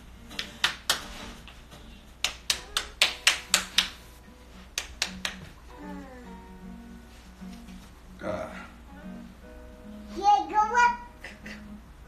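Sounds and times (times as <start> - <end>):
sharp hand slaps: 0.3 - 4.1, 4.7 - 5.6.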